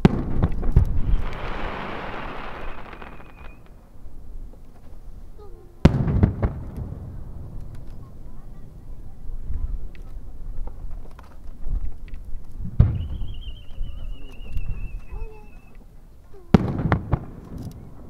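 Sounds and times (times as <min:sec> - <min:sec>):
firework shells bursting: 0:00.0 - 0:03.8
firework crackle: 0:00.0 - 0:04.6, 0:05.8 - 0:15.9, 0:16.5 - 0:18.0.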